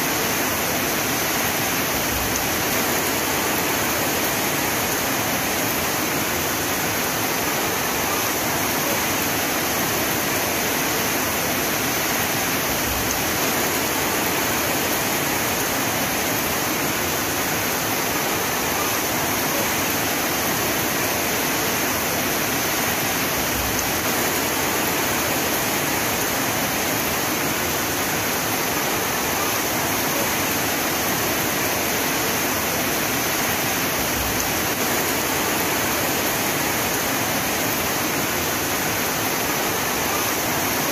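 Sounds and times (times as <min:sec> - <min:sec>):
heavy rain hiss: 0:00.0 - 0:40.9.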